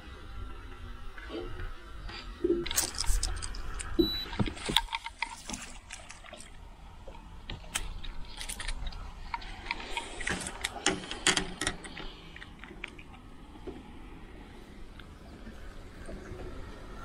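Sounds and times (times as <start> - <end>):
fishing gear clicks and knocks: 2.7 - 6.6, 7.5 - 13.1.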